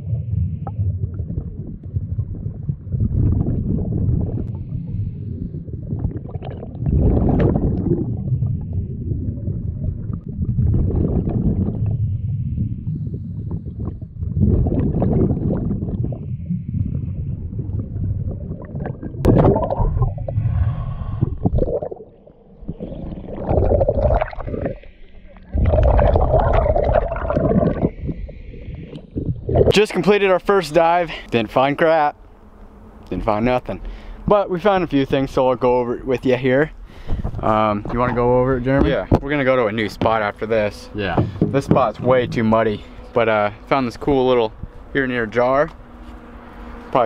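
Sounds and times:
exhaled bubbles gurgling: 0.0 - 30.2
diver breathing through regulator: 20.2 - 21.7, 33.8 - 34.3, 36.8 - 37.4.

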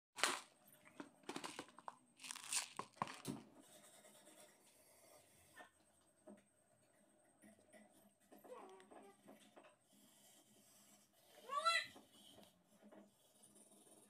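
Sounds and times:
hands rubbing on plastic tray: 1.3 - 3.3.

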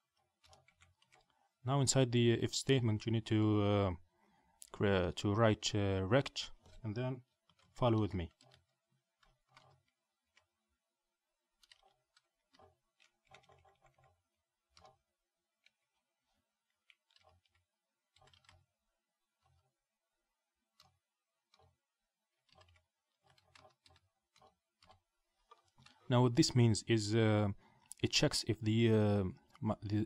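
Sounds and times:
computer keyboard typing: 11.6 - 15.0, 16.8 - 18.7, 22.4 - 26.0.

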